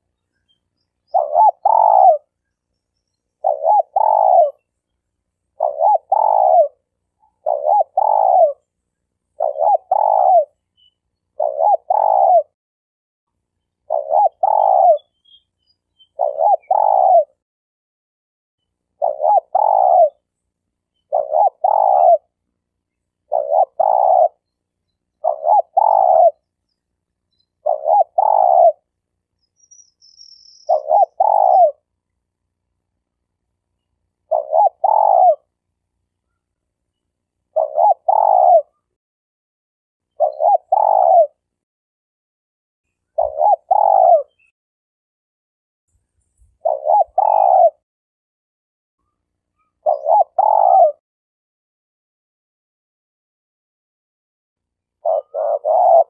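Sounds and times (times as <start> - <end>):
dove cooing: 1.1 - 2.4, 3.4 - 4.7, 5.6 - 8.7, 9.4 - 10.6, 11.4 - 12.6, 13.8 - 15.1, 16.1 - 17.4, 19.0 - 20.3, 21.1 - 22.4, 23.2 - 24.4, 25.2 - 26.4, 27.6 - 28.9, 30.7 - 31.9, 34.2 - 35.6, 37.5 - 38.9, 40.1 - 41.5, 43.1 - 44.4, 46.6 - 47.8, 49.6 - 51.0, 55.0 - 56.0.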